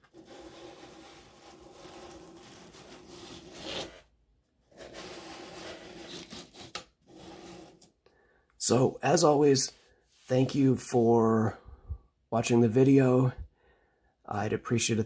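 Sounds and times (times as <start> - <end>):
plastic model scraping on tabletop: 0.0 - 4.1, 4.7 - 7.9.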